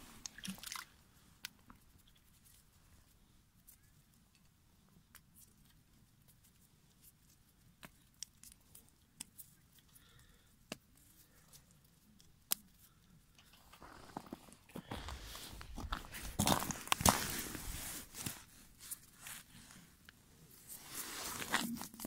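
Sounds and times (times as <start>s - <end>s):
soft rustling: 12.8s - 22.0s.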